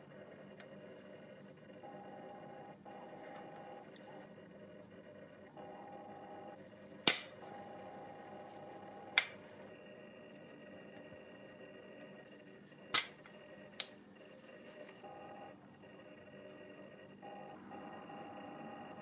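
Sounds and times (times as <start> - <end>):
faint hum: 0.0 - 19.0.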